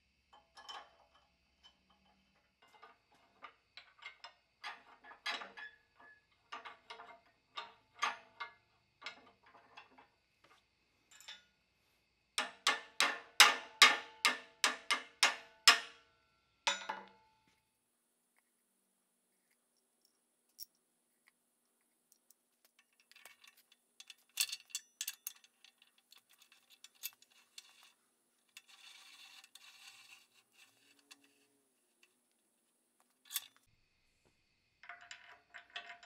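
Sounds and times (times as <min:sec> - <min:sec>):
steel vise parts clanking: 0:00.6 - 0:10.1, 0:22.8 - 0:31.5, 0:33.2 - 0:33.6.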